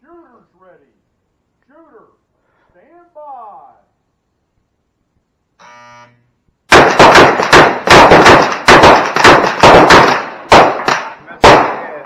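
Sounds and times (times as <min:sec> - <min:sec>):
pistol shots: 0:06.7 - 0:12.0.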